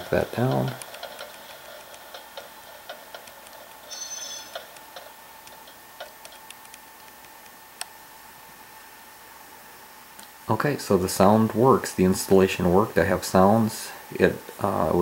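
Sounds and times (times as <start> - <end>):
simulated wheel clickety-clack: 0.0 - 6.1
high flange squeal: 3.9 - 4.6.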